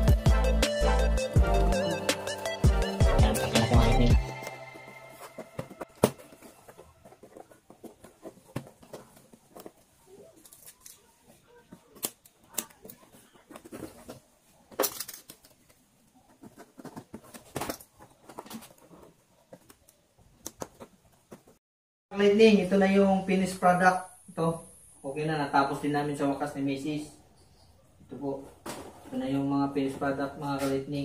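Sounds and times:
plastic strips crinkling: 0:05.2 - 0:15.8.

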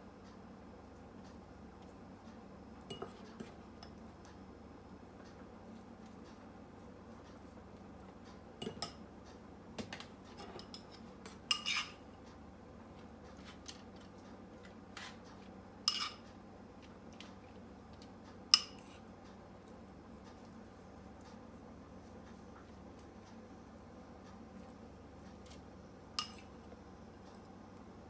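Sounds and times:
utensil clinking on ceramic bowl: 0:02.8 - 0:04.0, 0:08.6 - 0:09.0, 0:10.4 - 0:12.0, 0:15.8 - 0:16.2, 0:18.5 - 0:19.0, 0:26.2 - 0:26.6.

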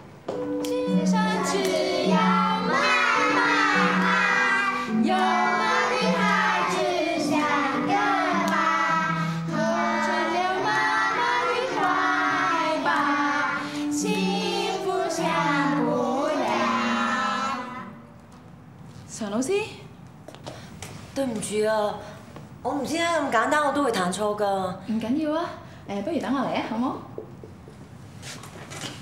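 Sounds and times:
keyboard playing held notes: 0:00.3 - 0:18.2
children singing in unison: 0:00.7 - 0:18.0.

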